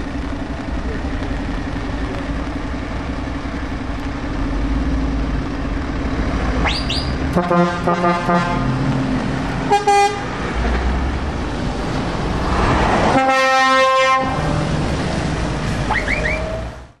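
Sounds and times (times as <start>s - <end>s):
tyres hissing on wet road: 0.0s - 16.8s
truck engines running: 0.0s - 17.0s
vehicle horn: 6.9s - 8.8s, 9.7s - 10.4s, 13.1s - 14.6s.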